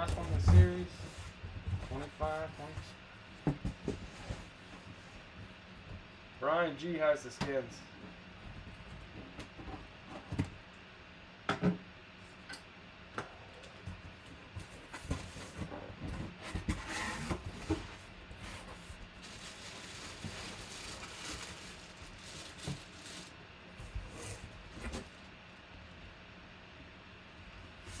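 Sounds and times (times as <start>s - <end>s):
cardboard scraping and rustling: 0.0s - 5.1s, 13.9s - 25.2s.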